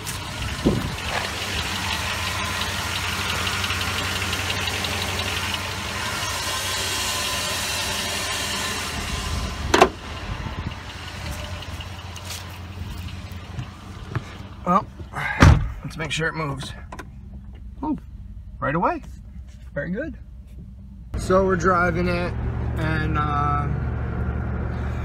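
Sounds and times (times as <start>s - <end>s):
car engine idling: 0.0s - 25.0s.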